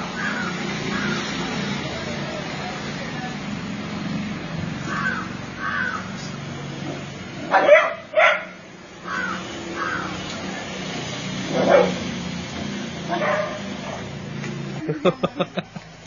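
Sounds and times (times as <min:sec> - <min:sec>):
dog barking: 0:07.5 - 0:08.6, 0:11.5 - 0:12.1, 0:13.1 - 0:14.1.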